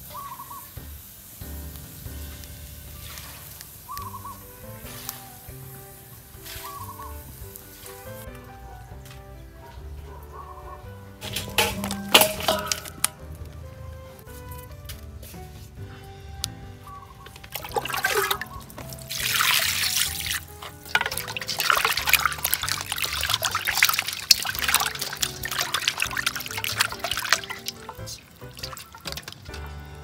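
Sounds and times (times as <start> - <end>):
water pouring into metal bowl: 3.0 - 3.8, 11.2 - 13.1, 17.4 - 29.8
hands scrubbing fish in water: 17.2 - 29.7.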